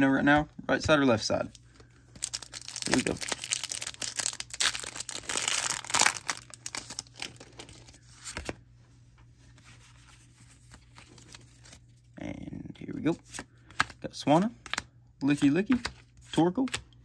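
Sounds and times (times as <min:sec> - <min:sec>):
foil wrapper tearing and crinkling: 0:02.2 - 0:07.9.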